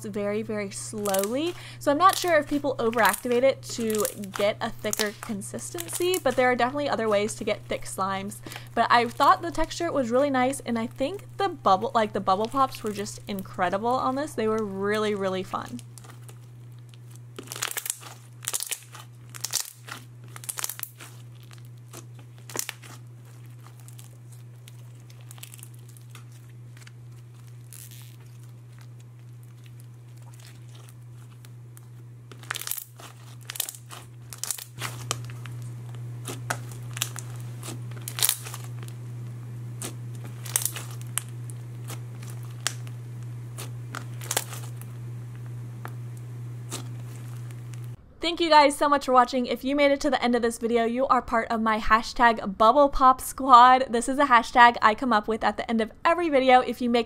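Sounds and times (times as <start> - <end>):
low hum: 0.0 - 48.2
slime squishing with bead pops: 17.0 - 28.8, 36.2 - 38.9, 39.8 - 42.9, 43.5 - 44.8.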